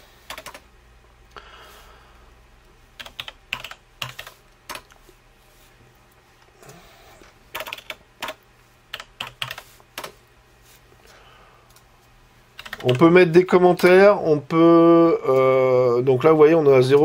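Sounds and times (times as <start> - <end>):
computer keyboard typing: 0.3 - 0.6, 3.0 - 5.0, 7.5 - 10.2, 12.6 - 13.2.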